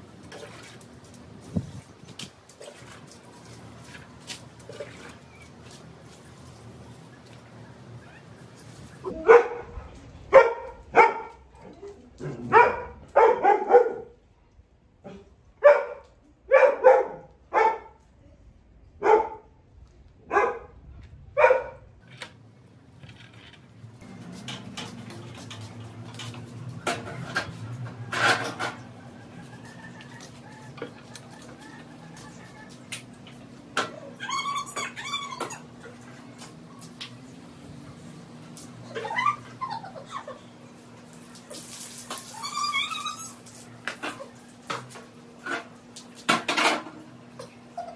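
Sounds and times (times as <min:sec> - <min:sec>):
dog barking: 0:09.2 - 0:11.4, 0:12.5 - 0:14.2, 0:15.6 - 0:18.0, 0:19.0 - 0:19.5, 0:20.3 - 0:20.7, 0:21.4 - 0:21.8.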